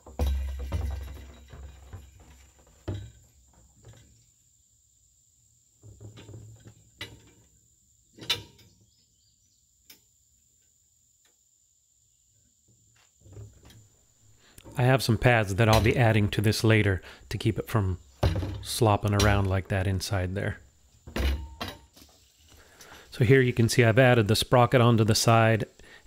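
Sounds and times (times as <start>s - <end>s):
plastic barrel knocking on steel frame: 0.0s - 3.2s.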